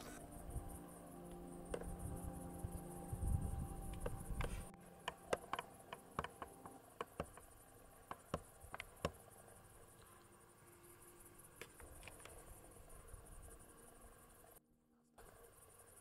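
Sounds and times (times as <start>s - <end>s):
crickets chirping: 0.0s - 16.0s
sharp irregular clicks: 3.9s - 9.2s.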